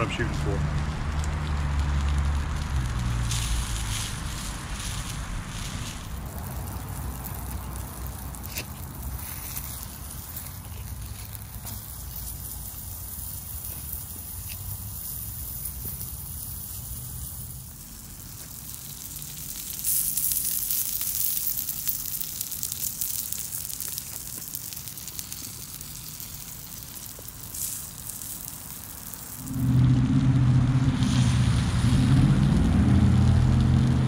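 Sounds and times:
loud low engine drone: 0:00.0 - 0:06.8, 0:29.4 - 0:34.0
steak sizzling on grill: 0:00.0 - 0:29.6, 0:31.0 - 0:34.0.

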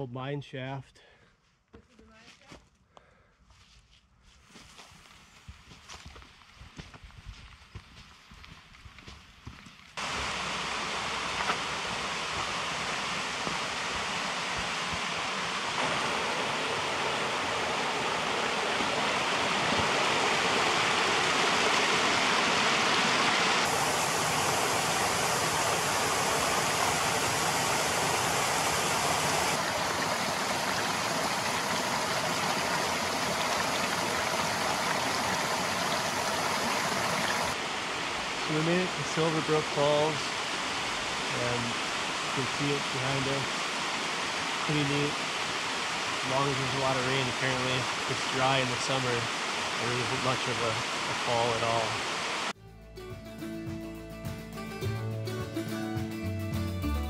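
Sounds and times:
water rushing over rocks: 0:10.0 - 0:52.5.

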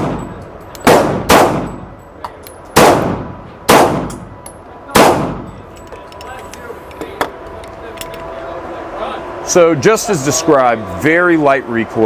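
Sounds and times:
pistol shots ringing indoors: 0:00.0 - 0:05.5.

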